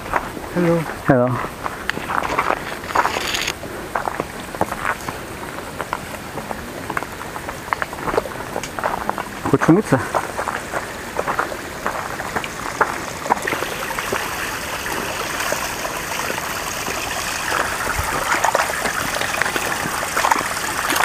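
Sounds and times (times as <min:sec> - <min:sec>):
water running in stone channel: 0:00.0 - 0:21.0
small clicks: 0:02.9 - 0:03.6.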